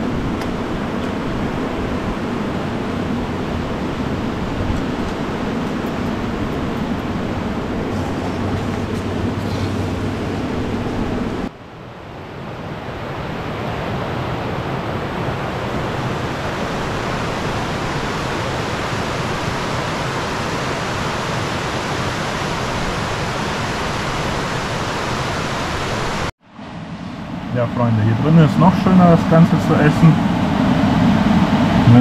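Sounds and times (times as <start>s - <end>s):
low hum: 0.0s - 11.6s
waterfall roar: 0.0s - 26.3s, 27.3s - 32.0s.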